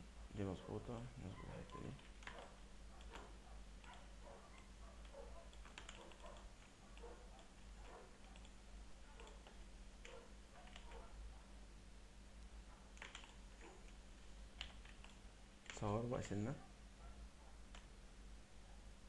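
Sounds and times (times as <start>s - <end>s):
low electrical hum: 0.0s - 19.0s
computer mouse clicks: 1.6s - 8.6s, 9.2s - 11.0s, 12.9s - 15.8s, 17.7s - 17.9s.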